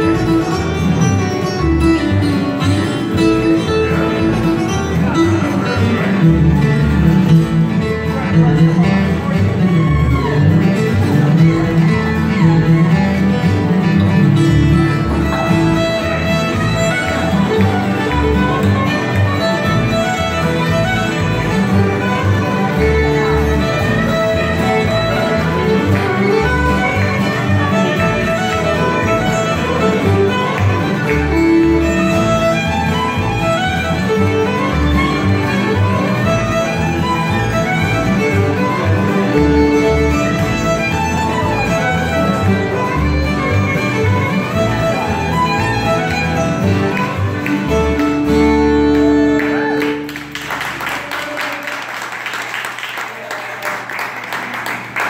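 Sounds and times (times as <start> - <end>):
plucked upright bass: 0.0 - 50.1
strummed acoustic guitars: 0.0 - 50.8
fiddle: 0.0 - 50.9
audience applause: 14.8 - 55.0.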